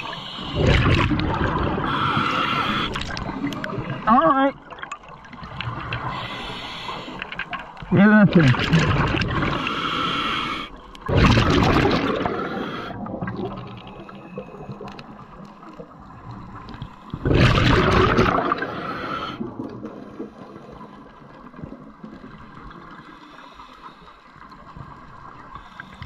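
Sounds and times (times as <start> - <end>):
regulator breath hissing: 0.0 - 0.7, 1.8 - 3.1, 6.1 - 7.3, 9.5 - 10.8, 12.2 - 13.0, 18.6 - 19.4
exhaled bubbles rushing: 0.0 - 6.2, 8.3 - 9.7, 11.0 - 23.0.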